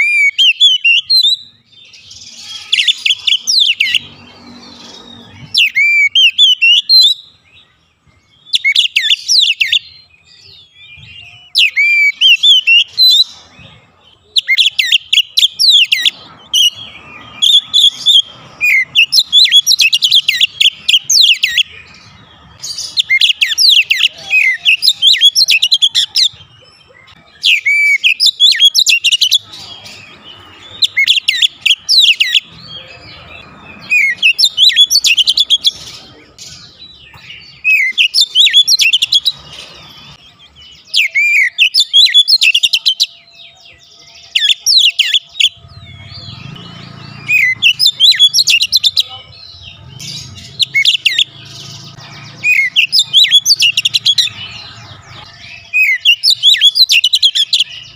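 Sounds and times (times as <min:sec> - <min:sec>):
bird singing whistled phrases: 0:00.0 - 0:04.0, 0:05.0 - 0:07.3, 0:08.4 - 0:13.4, 0:14.2 - 0:21.8, 0:22.8 - 0:26.4, 0:27.1 - 0:29.9, 0:36.6 - 0:39.4, 0:40.7 - 0:49.9, 0:52.4 - 0:54.6, 0:55.3 - 0:57.9.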